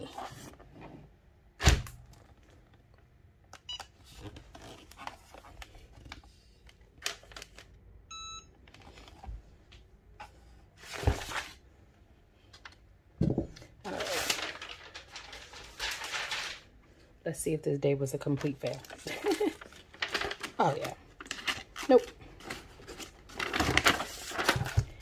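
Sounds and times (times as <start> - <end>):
rustling: 13.9 - 16.7, 18.6 - 25.0.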